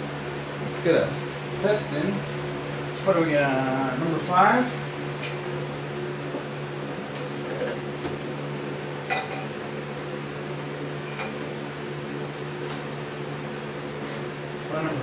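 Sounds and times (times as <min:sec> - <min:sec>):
fan humming: 0:00.0 - 0:15.0.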